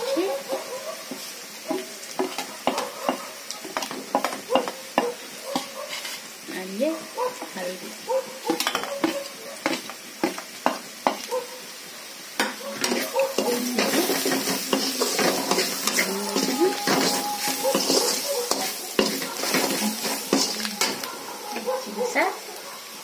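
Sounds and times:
masala sizzling in hot oil: 0:00.0 - 0:23.0
spatula scraping a pan: 0:01.0 - 0:06.4, 0:12.4 - 0:21.6.

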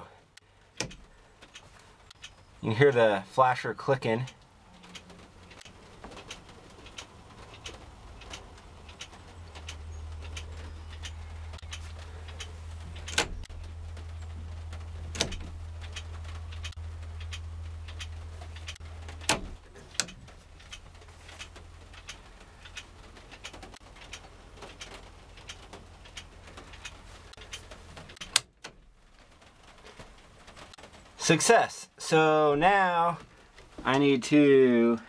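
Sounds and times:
turn signal flasher clicking: 0:00.3 - 0:02.5, 0:04.2 - 0:28.9.

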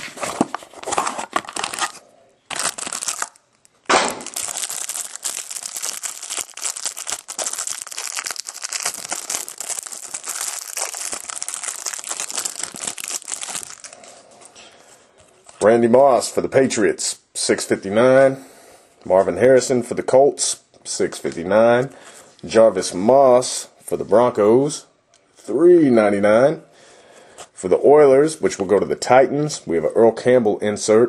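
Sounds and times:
plastic wrapping crinkling: 0:00.0 - 0:14.4.

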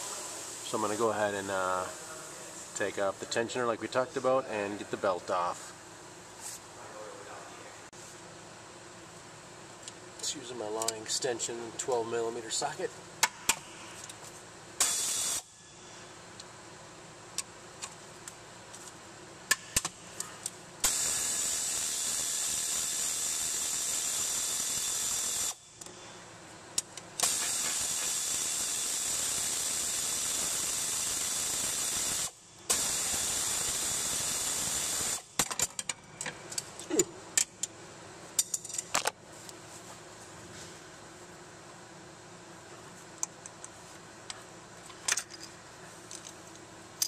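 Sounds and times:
pneumatic air tool hissing: 0:14.8 - 0:15.6, 0:20.8 - 0:26.0, 0:27.2 - 0:35.4
metal bolts clicking and clinking: 0:38.4 - 0:39.1, 0:44.9 - 0:46.4.

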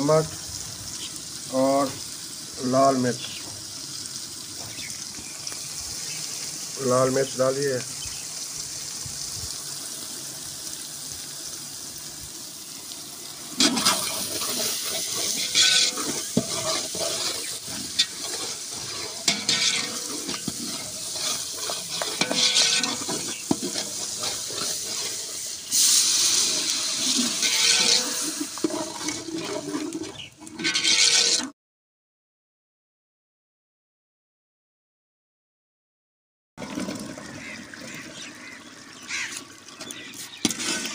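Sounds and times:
food sizzling in a pot: 0:00.0 - 0:31.5, 0:38.2 - 0:40.9
ladle scraping and knocking pot: 0:13.6 - 0:25.2, 0:25.8 - 0:31.5, 0:40.4 - 0:40.9.

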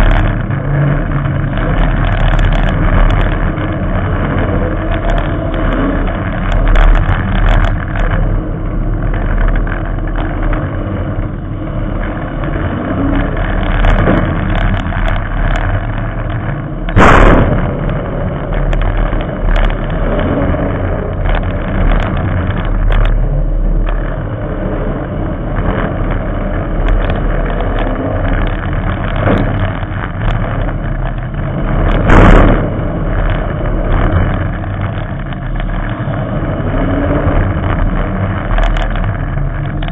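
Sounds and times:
race car engine revving: 0:00.0 - 0:39.9
loud sharp bangs: 0:16.9 - 0:19.8.

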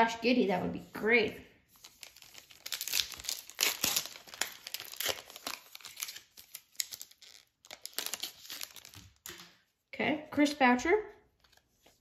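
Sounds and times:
foil wrapper crinkling and tearing: 0:01.7 - 0:09.3.

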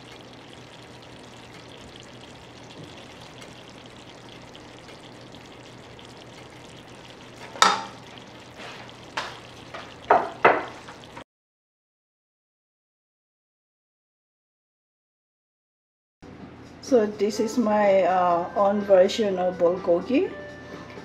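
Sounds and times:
meat sizzling in a pan: 0:00.0 - 0:11.2.

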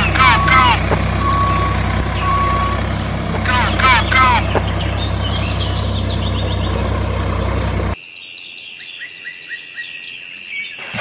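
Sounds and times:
small engine idling: 0:00.0 - 0:08.0
bird chirps: 0:00.0 - 0:10.9.

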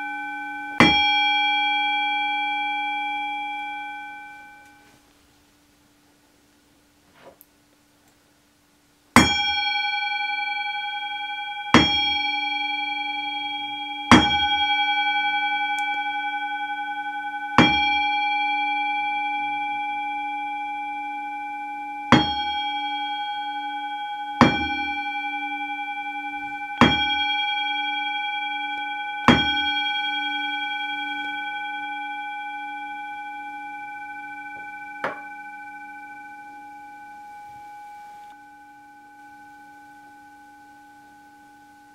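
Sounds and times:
singing bowl ringing: 0:00.0 - 0:04.9, 0:09.2 - 0:41.9
low wavering hum: 0:09.2 - 0:41.9.

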